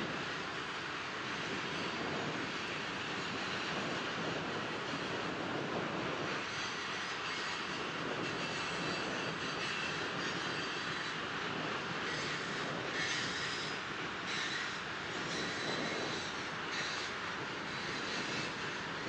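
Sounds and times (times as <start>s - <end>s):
train wheels rolling on rail: 0.0s - 19.0s
high wheel squeal: 6.4s - 19.0s.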